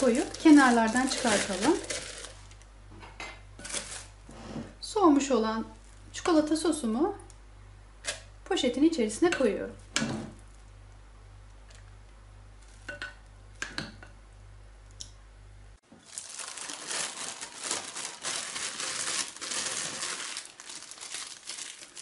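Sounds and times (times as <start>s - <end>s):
plastic bag crinkling: 0.0s - 2.7s, 3.6s - 4.2s, 15.9s - 22.0s.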